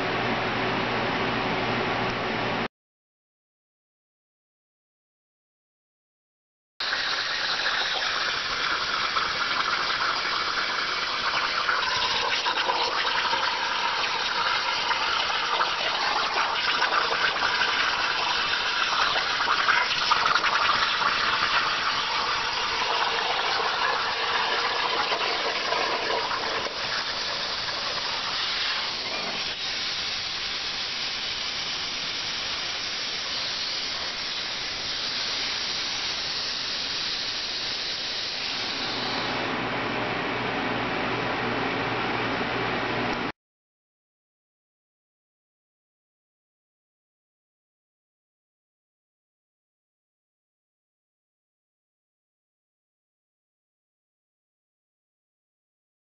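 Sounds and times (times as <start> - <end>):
plasma torch hissing: 26.5 - 39.4.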